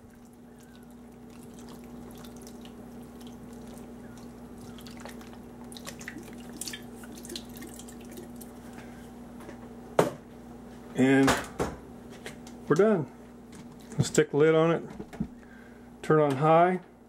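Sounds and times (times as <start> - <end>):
juice pouring from a can: 0.0 - 8.9.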